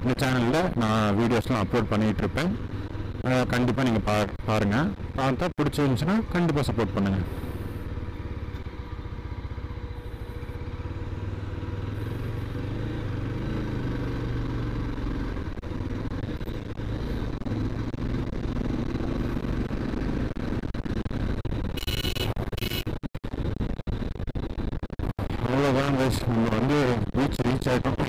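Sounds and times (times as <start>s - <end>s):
motorcycle engine running: 0.0s - 28.0s
short high-pitched beeps: 21.8s - 22.9s.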